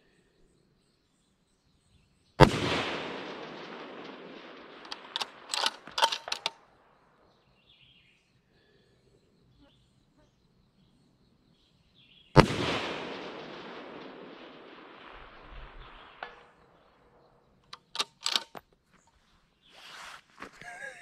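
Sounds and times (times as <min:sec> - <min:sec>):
rifle shot echoing: 0:02.4 - 0:06.9, 0:12.4 - 0:18.6
rifle bolt clicking: 0:04.8 - 0:06.5, 0:17.7 - 0:18.6.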